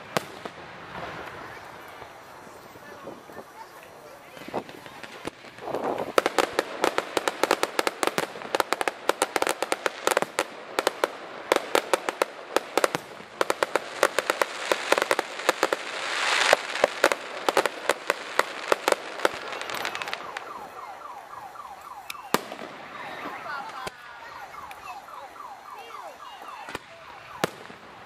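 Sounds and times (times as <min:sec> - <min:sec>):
fireworks crackling: 0:00.0 - 0:28.0
fireworks hiss: 0:11.8 - 0:20.8.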